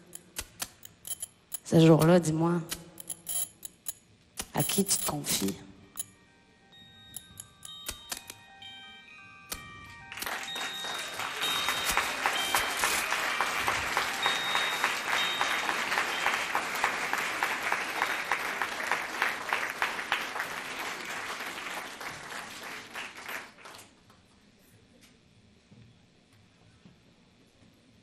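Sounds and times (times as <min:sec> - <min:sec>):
music: 0:05.0 - 0:22.6
audience applause: 0:10.1 - 0:24.0.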